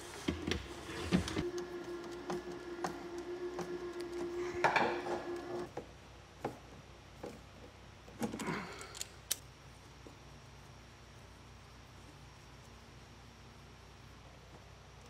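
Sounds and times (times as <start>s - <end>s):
steady hum: 0.0s - 7.0s.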